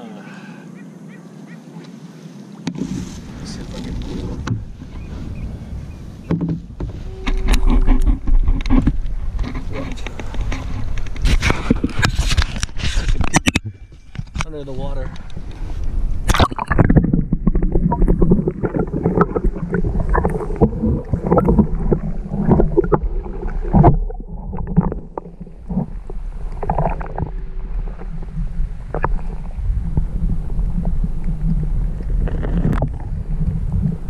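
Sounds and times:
underwater rumble of water: 0:02.8 - 0:34.0
clicks against camera housing: 0:09.4 - 0:14.5.

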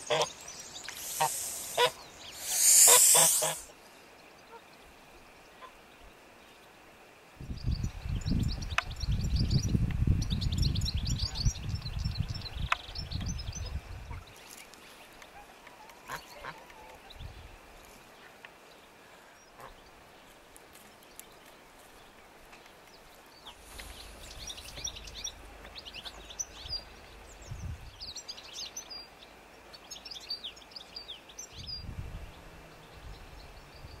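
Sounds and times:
geese honking: 0:00.0 - 0:00.3, 0:00.9 - 0:03.7
small birds chirping: 0:00.0 - 0:06.8, 0:07.5 - 0:34.0.

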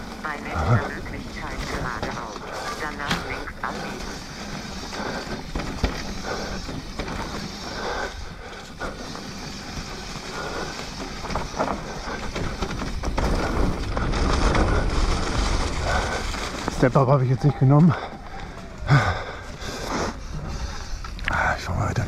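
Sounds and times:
bike tyre noise on dirt: 0:00.0 - 0:22.0
bike knocks and rattles: 0:01.0 - 0:17.1.

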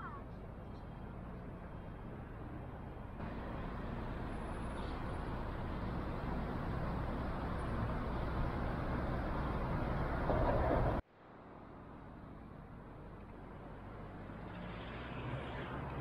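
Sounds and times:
cars driving past: 0:12.9 - 0:16.0.

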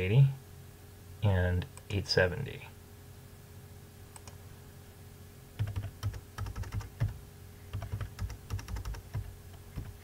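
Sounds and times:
computer keyboard typing: 0:05.6 - 0:10.0.

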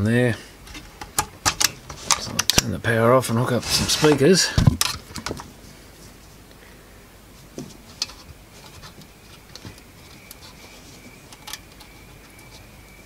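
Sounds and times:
speaker wire clicks and knocks: 0:00.7 - 0:02.8, 0:04.1 - 0:05.5, 0:07.5 - 0:10.5.

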